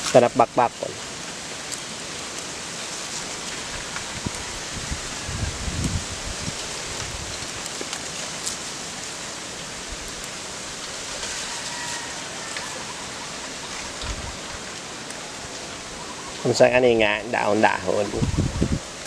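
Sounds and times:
leafy plants rustling: 0.0 - 19.0
outdoor hiss: 0.0 - 19.0
stems snapping: 7.0 - 8.7.

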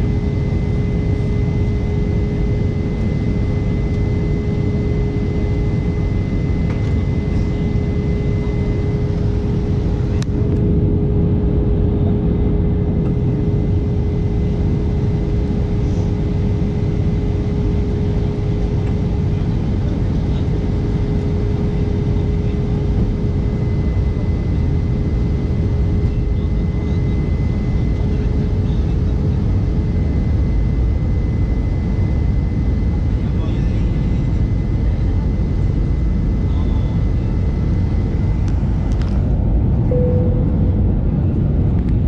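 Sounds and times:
airliner engine and airflow rush: 0.0 - 42.0
steady cabin hum: 35.7 - 42.0.

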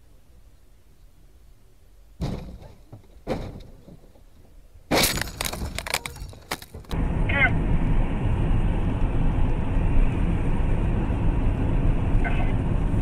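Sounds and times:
car crashing and cracking: 2.2 - 7.0
heavy thumps: 2.2 - 7.0.

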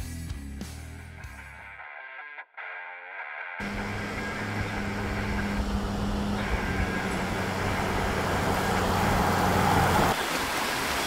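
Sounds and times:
car engine hum: 3.6 - 10.2
flowing creek water: 3.6 - 11.0
tyre noise on road: 3.6 - 11.0.

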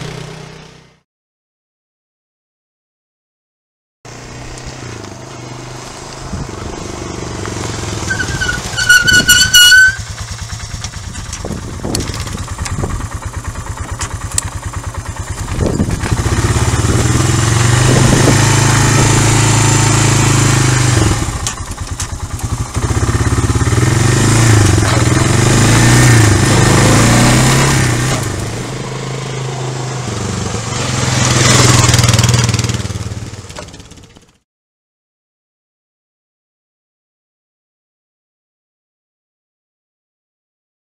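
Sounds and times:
quad bike engine revving: 0.0 - 1.0, 4.1 - 34.4
horn beep: 8.1 - 10.1.

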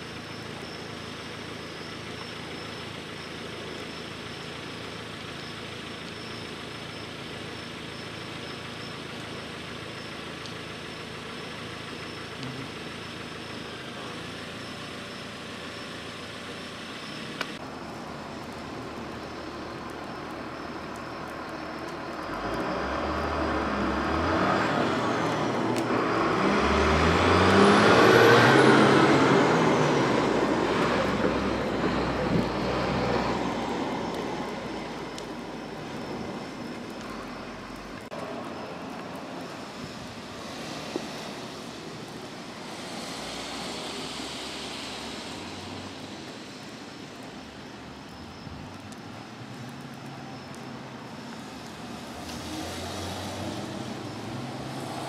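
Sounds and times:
outdoor background noise: 0.0 - 55.0
vehicle driving past: 22.3 - 37.8, 51.3 - 55.0.

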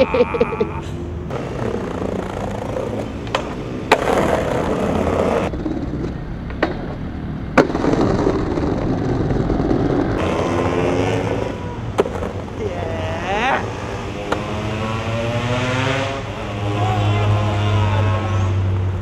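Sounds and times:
skateboard wheels rolling on concrete: 1.2 - 19.0.

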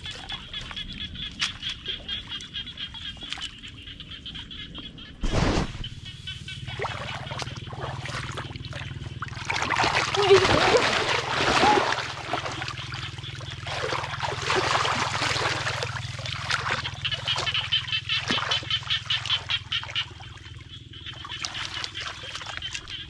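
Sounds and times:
muddy water splashing: 0.0 - 23.0.

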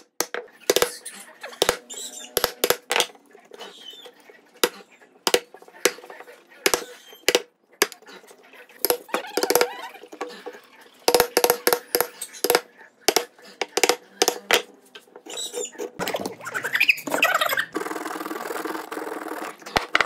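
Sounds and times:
squeaky gliding sounds: 0.5 - 7.4, 15.2 - 18.1.

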